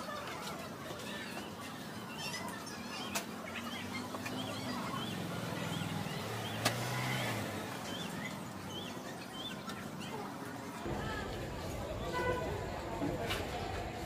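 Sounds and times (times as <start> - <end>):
low traffic hum: 0.0 - 14.0
bird chirping: 2.0 - 10.2.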